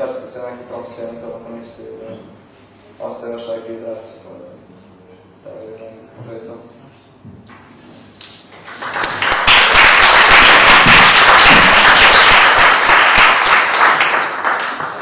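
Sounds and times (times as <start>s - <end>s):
audience applauding: 8.5s - 15.0s.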